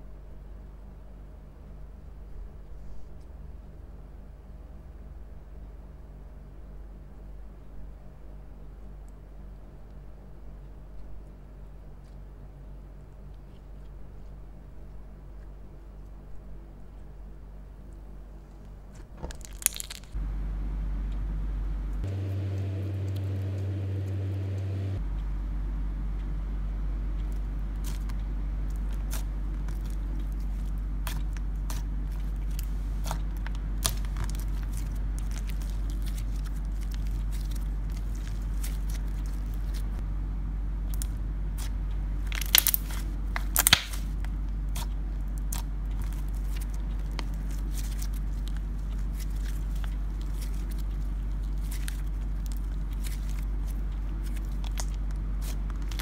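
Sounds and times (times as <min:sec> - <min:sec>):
steady low hum: 0:00.0 - 0:56.0
slime crackles and clicks: 0:19.3 - 0:20.2, 0:27.8 - 0:39.9, 0:40.9 - 0:56.0
slime pops: 0:42.4 - 0:44.0.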